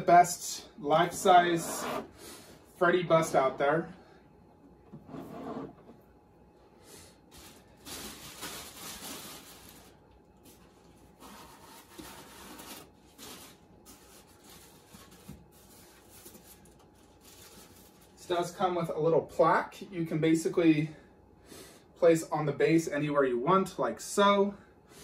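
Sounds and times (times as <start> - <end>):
packaging rustling: 7.3 - 18.2.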